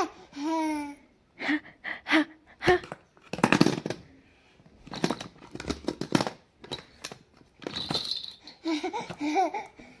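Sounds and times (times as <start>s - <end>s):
plastic toys clattering together: 2.7s - 4.2s, 4.8s - 9.2s.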